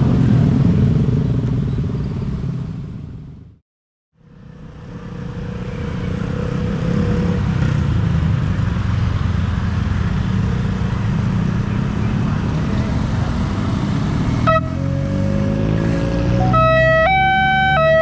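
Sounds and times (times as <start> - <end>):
cars passing: 4.2 - 18.0
motorcycles passing: 4.2 - 18.0.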